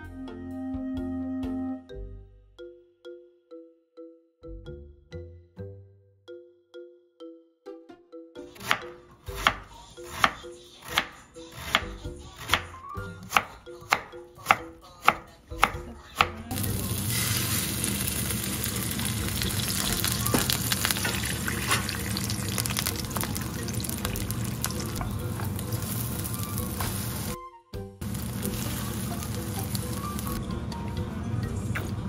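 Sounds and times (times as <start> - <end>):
plucked background tune: 0.0 - 32.0
egg frying in hot oil: 16.5 - 27.4.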